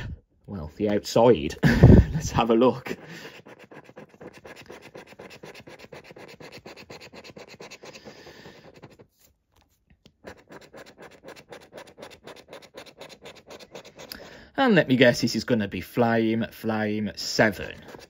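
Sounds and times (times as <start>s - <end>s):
scratching scratchcard coating: 2.2s - 14.3s, 17.2s - 18.0s.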